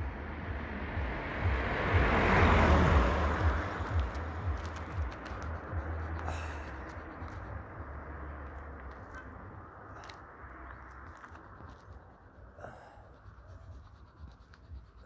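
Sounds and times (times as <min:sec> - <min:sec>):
car driving past: 0:00.0 - 0:11.9.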